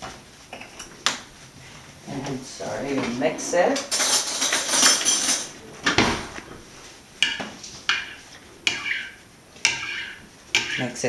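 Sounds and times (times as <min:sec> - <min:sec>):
kitchen rattle: 0:02.3 - 0:11.0
utensil clinking glass bowl: 0:03.9 - 0:05.5, 0:07.2 - 0:11.0.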